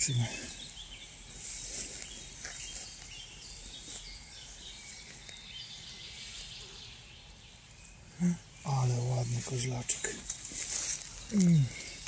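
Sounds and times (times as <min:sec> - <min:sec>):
faint birds: 0:00.0 - 0:12.0
footsteps rustling through dry leaves: 0:00.3 - 0:06.7, 0:09.1 - 0:12.0.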